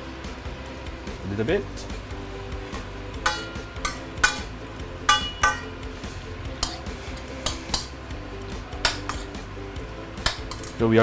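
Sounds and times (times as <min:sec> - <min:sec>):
vegetables tossed in a wok: 0:02.6 - 0:10.9
metal ladle clanking in a wok: 0:02.7 - 0:08.0, 0:08.7 - 0:09.4, 0:10.2 - 0:10.8.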